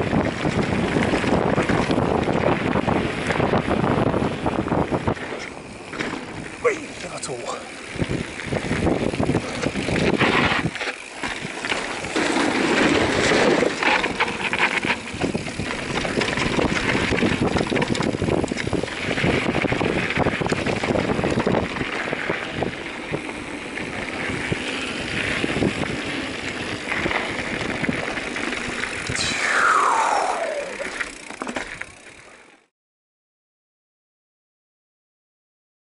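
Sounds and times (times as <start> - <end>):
wind buffeting microphone: 0.0 - 13.9, 14.8 - 31.2
bike rattling over bumps: 0.0 - 29.4, 30.1 - 32.7
falling whistle-like tone: 29.2 - 31.0.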